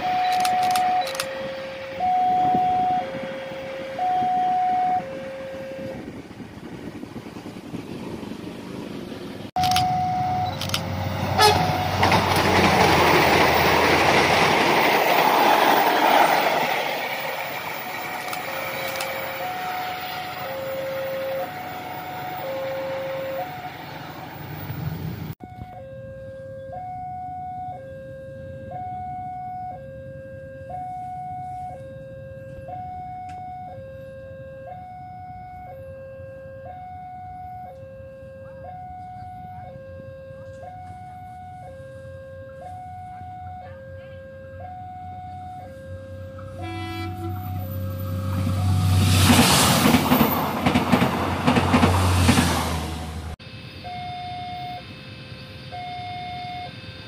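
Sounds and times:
level-crossing two-tone alarm: 0:00.0 - 0:06.0, 0:09.6 - 0:10.8, 0:17.6 - 0:24.2, 0:25.4 - 0:48.9, 0:53.4 - 0:57.0
train passing: 0:00.0 - 0:57.0.

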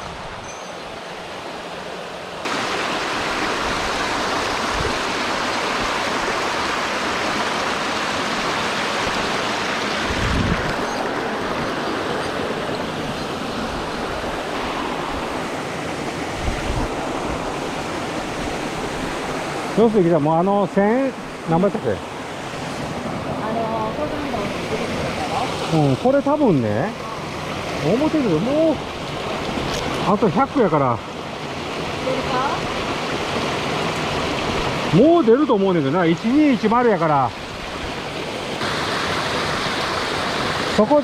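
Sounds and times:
waterfall and stream rushing: 0:00.0 - 0:41.0.

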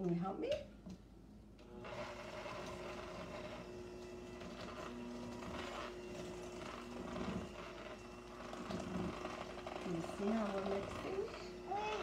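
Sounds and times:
electric hand mixer whirring: 0:01.6 - 0:12.0.

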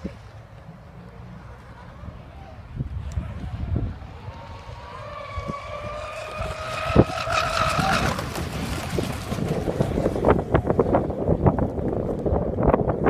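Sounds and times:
wind buffeting microphone: 0:01.5 - 0:13.0
electric motors whining: 0:03.0 - 0:08.4.

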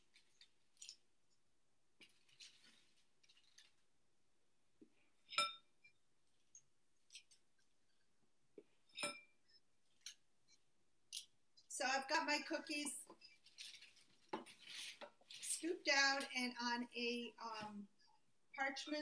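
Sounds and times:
metal clinking on glass bowl: 0:05.3 - 0:05.7, 0:08.9 - 0:09.4
metal scoop scraping dough: 0:13.2 - 0:16.3.

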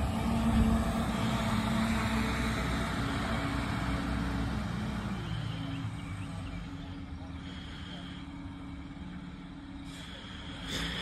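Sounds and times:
truck diesel engine: 0:00.0 - 0:11.0.

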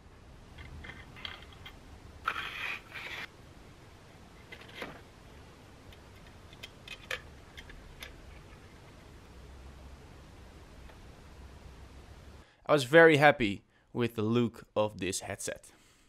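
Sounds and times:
metal parts scraping slide: 0:00.8 - 0:03.3.

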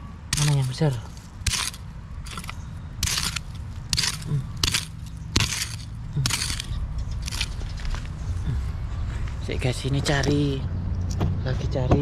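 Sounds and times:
hand hoe chopping pebbly dirt: 0:00.3 - 0:08.0.

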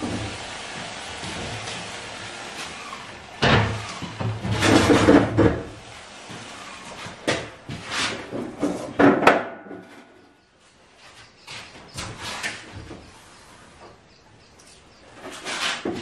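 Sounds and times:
plastic bin clunking and knocking: 0:07.2 - 0:09.9.

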